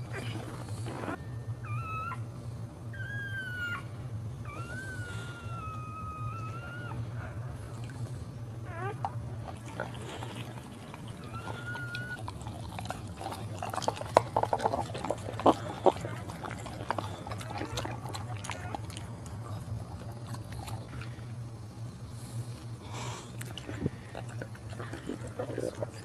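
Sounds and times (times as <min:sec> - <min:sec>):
puppy whining: 0:00.0 - 0:21.4, 0:22.3 - 0:26.0
dog licking wet slurping: 0:09.4 - 0:21.2, 0:23.4 - 0:26.0.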